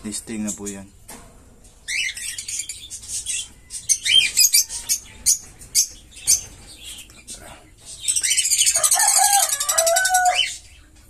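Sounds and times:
parrots chirping: 1.8 - 7.2, 7.9 - 10.7.

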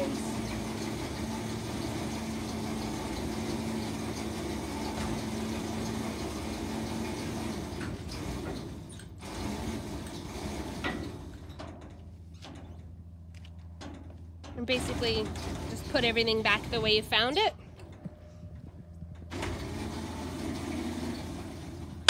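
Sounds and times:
hose reel motor hum: 0.0 - 11.5, 18.6 - 22.0.

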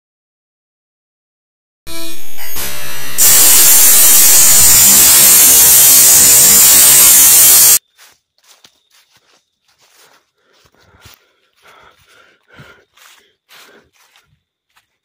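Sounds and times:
distorted electronic static buzzing: 1.9 - 7.8.

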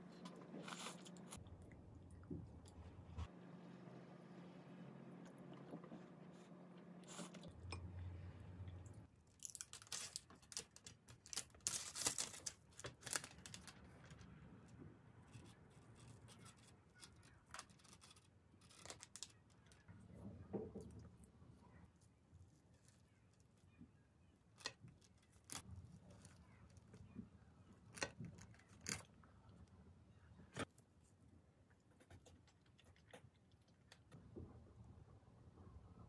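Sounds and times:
faint room hum: 0.0 - 36.0
plastic film crackling and tearing: 9.3 - 14.2, 16.4 - 19.8.

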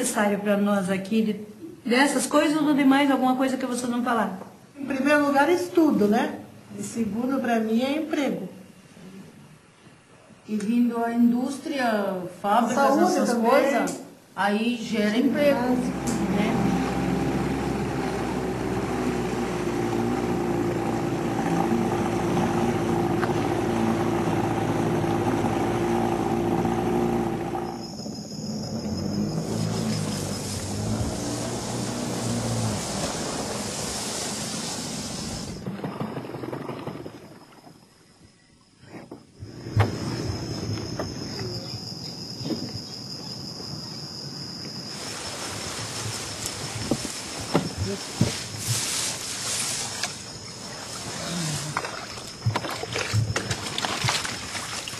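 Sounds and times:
outboard motor running: 15.3 - 37.3, 46.8 - 54.9
water rushing past hull: 15.4 - 38.0, 44.9 - 54.9
insects chirring: 16.7 - 54.9.

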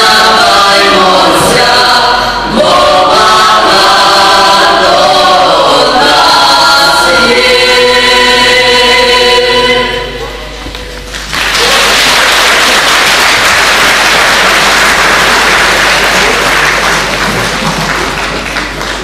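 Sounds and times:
audience applauding: 11.0 - 19.0.

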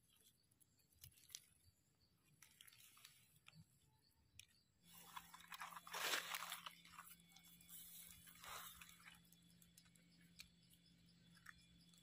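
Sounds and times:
rustling of dry leaves and soil: 0.0 - 4.0, 4.8 - 12.0.

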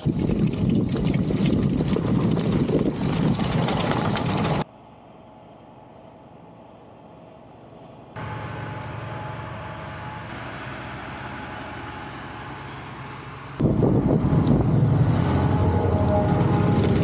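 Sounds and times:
tractor diesel engine running: 6.3 - 17.0.

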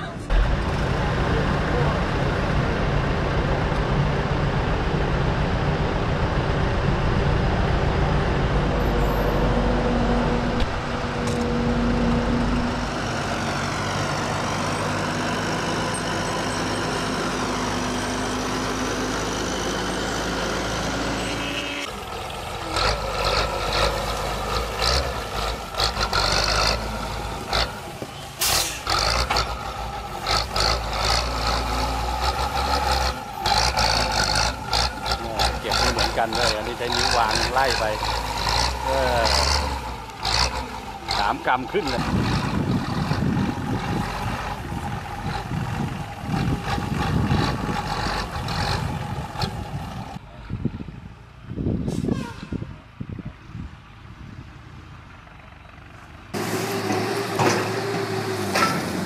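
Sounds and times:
loader diesel engine running: 0.0 - 52.0, 52.7 - 59.0
choppy tractor engine clattering: 28.9 - 50.2.

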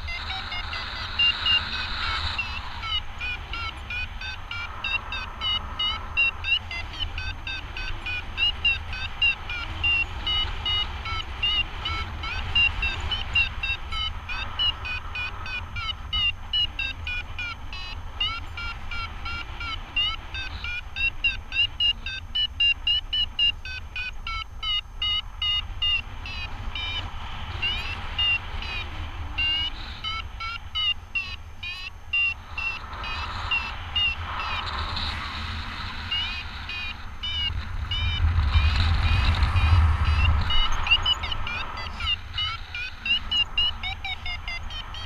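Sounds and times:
variometer beeping in short chirps: 0.0 - 35.1, 36.0 - 45.0
wind rumble on microphone: 32.4 - 44.9.

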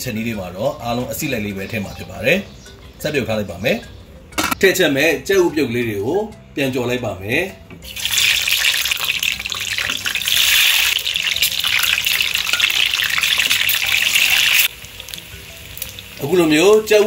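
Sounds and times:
hot oil sizzling loudly: 7.8 - 17.0.

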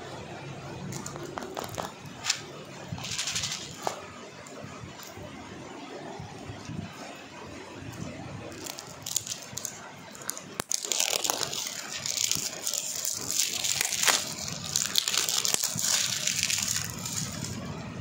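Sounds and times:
clay beads rattling in plastic box: 1.0 - 4.0, 8.5 - 17.6.

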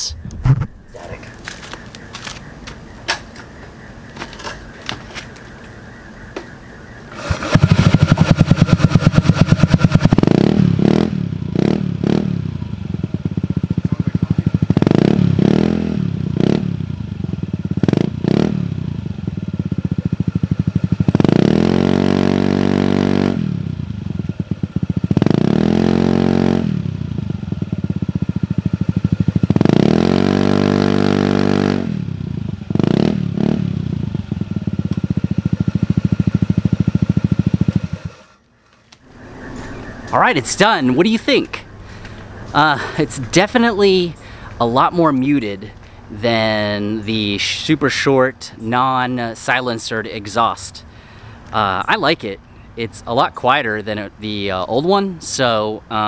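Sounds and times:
scooter engine revving: 7.1 - 38.4.

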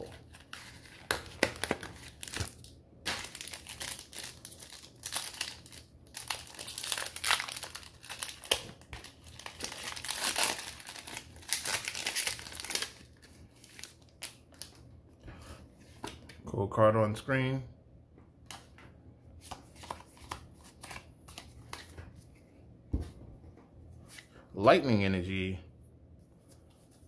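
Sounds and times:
foil wrapper crinkling and tearing: 0.0 - 14.8.

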